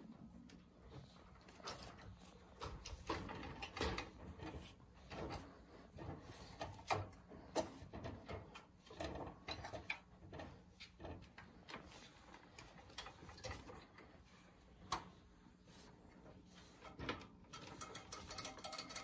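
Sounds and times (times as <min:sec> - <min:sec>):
wire pet cage rattling: 0:17.1 - 0:19.0.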